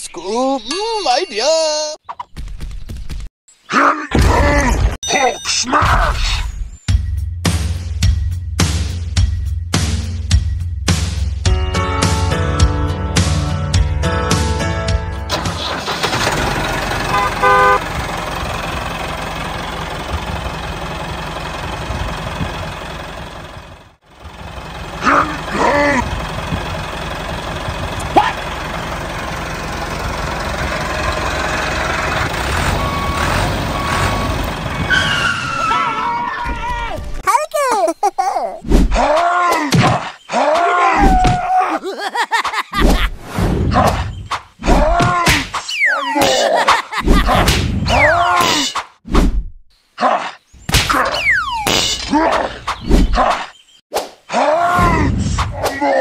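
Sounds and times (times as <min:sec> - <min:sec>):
tractor engine running: 0:15.2 - 0:35.4
short horn toot: 0:17.1 - 0:17.8
person grunting and groaning: 0:38.2 - 0:39.7, 0:44.7 - 0:45.4, 0:54.4 - 0:56.0.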